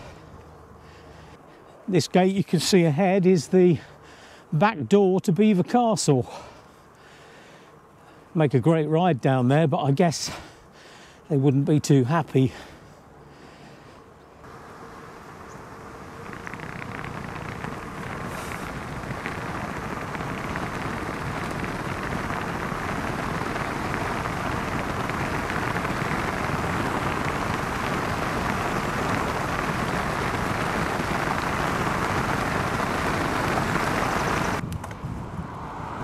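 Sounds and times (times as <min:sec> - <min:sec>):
bicycle tyres rolling on tarmac: 0:13.4 - 0:34.6
wind rushing over microphone: 0:14.4 - 0:36.0.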